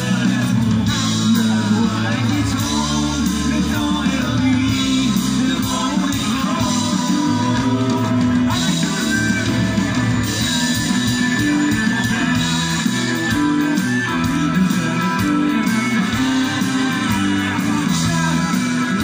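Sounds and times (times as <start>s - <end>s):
bass guitar: 0.0s - 19.0s
drums: 0.0s - 19.0s
electric guitars: 0.0s - 19.0s
person singing: 0.0s - 19.0s.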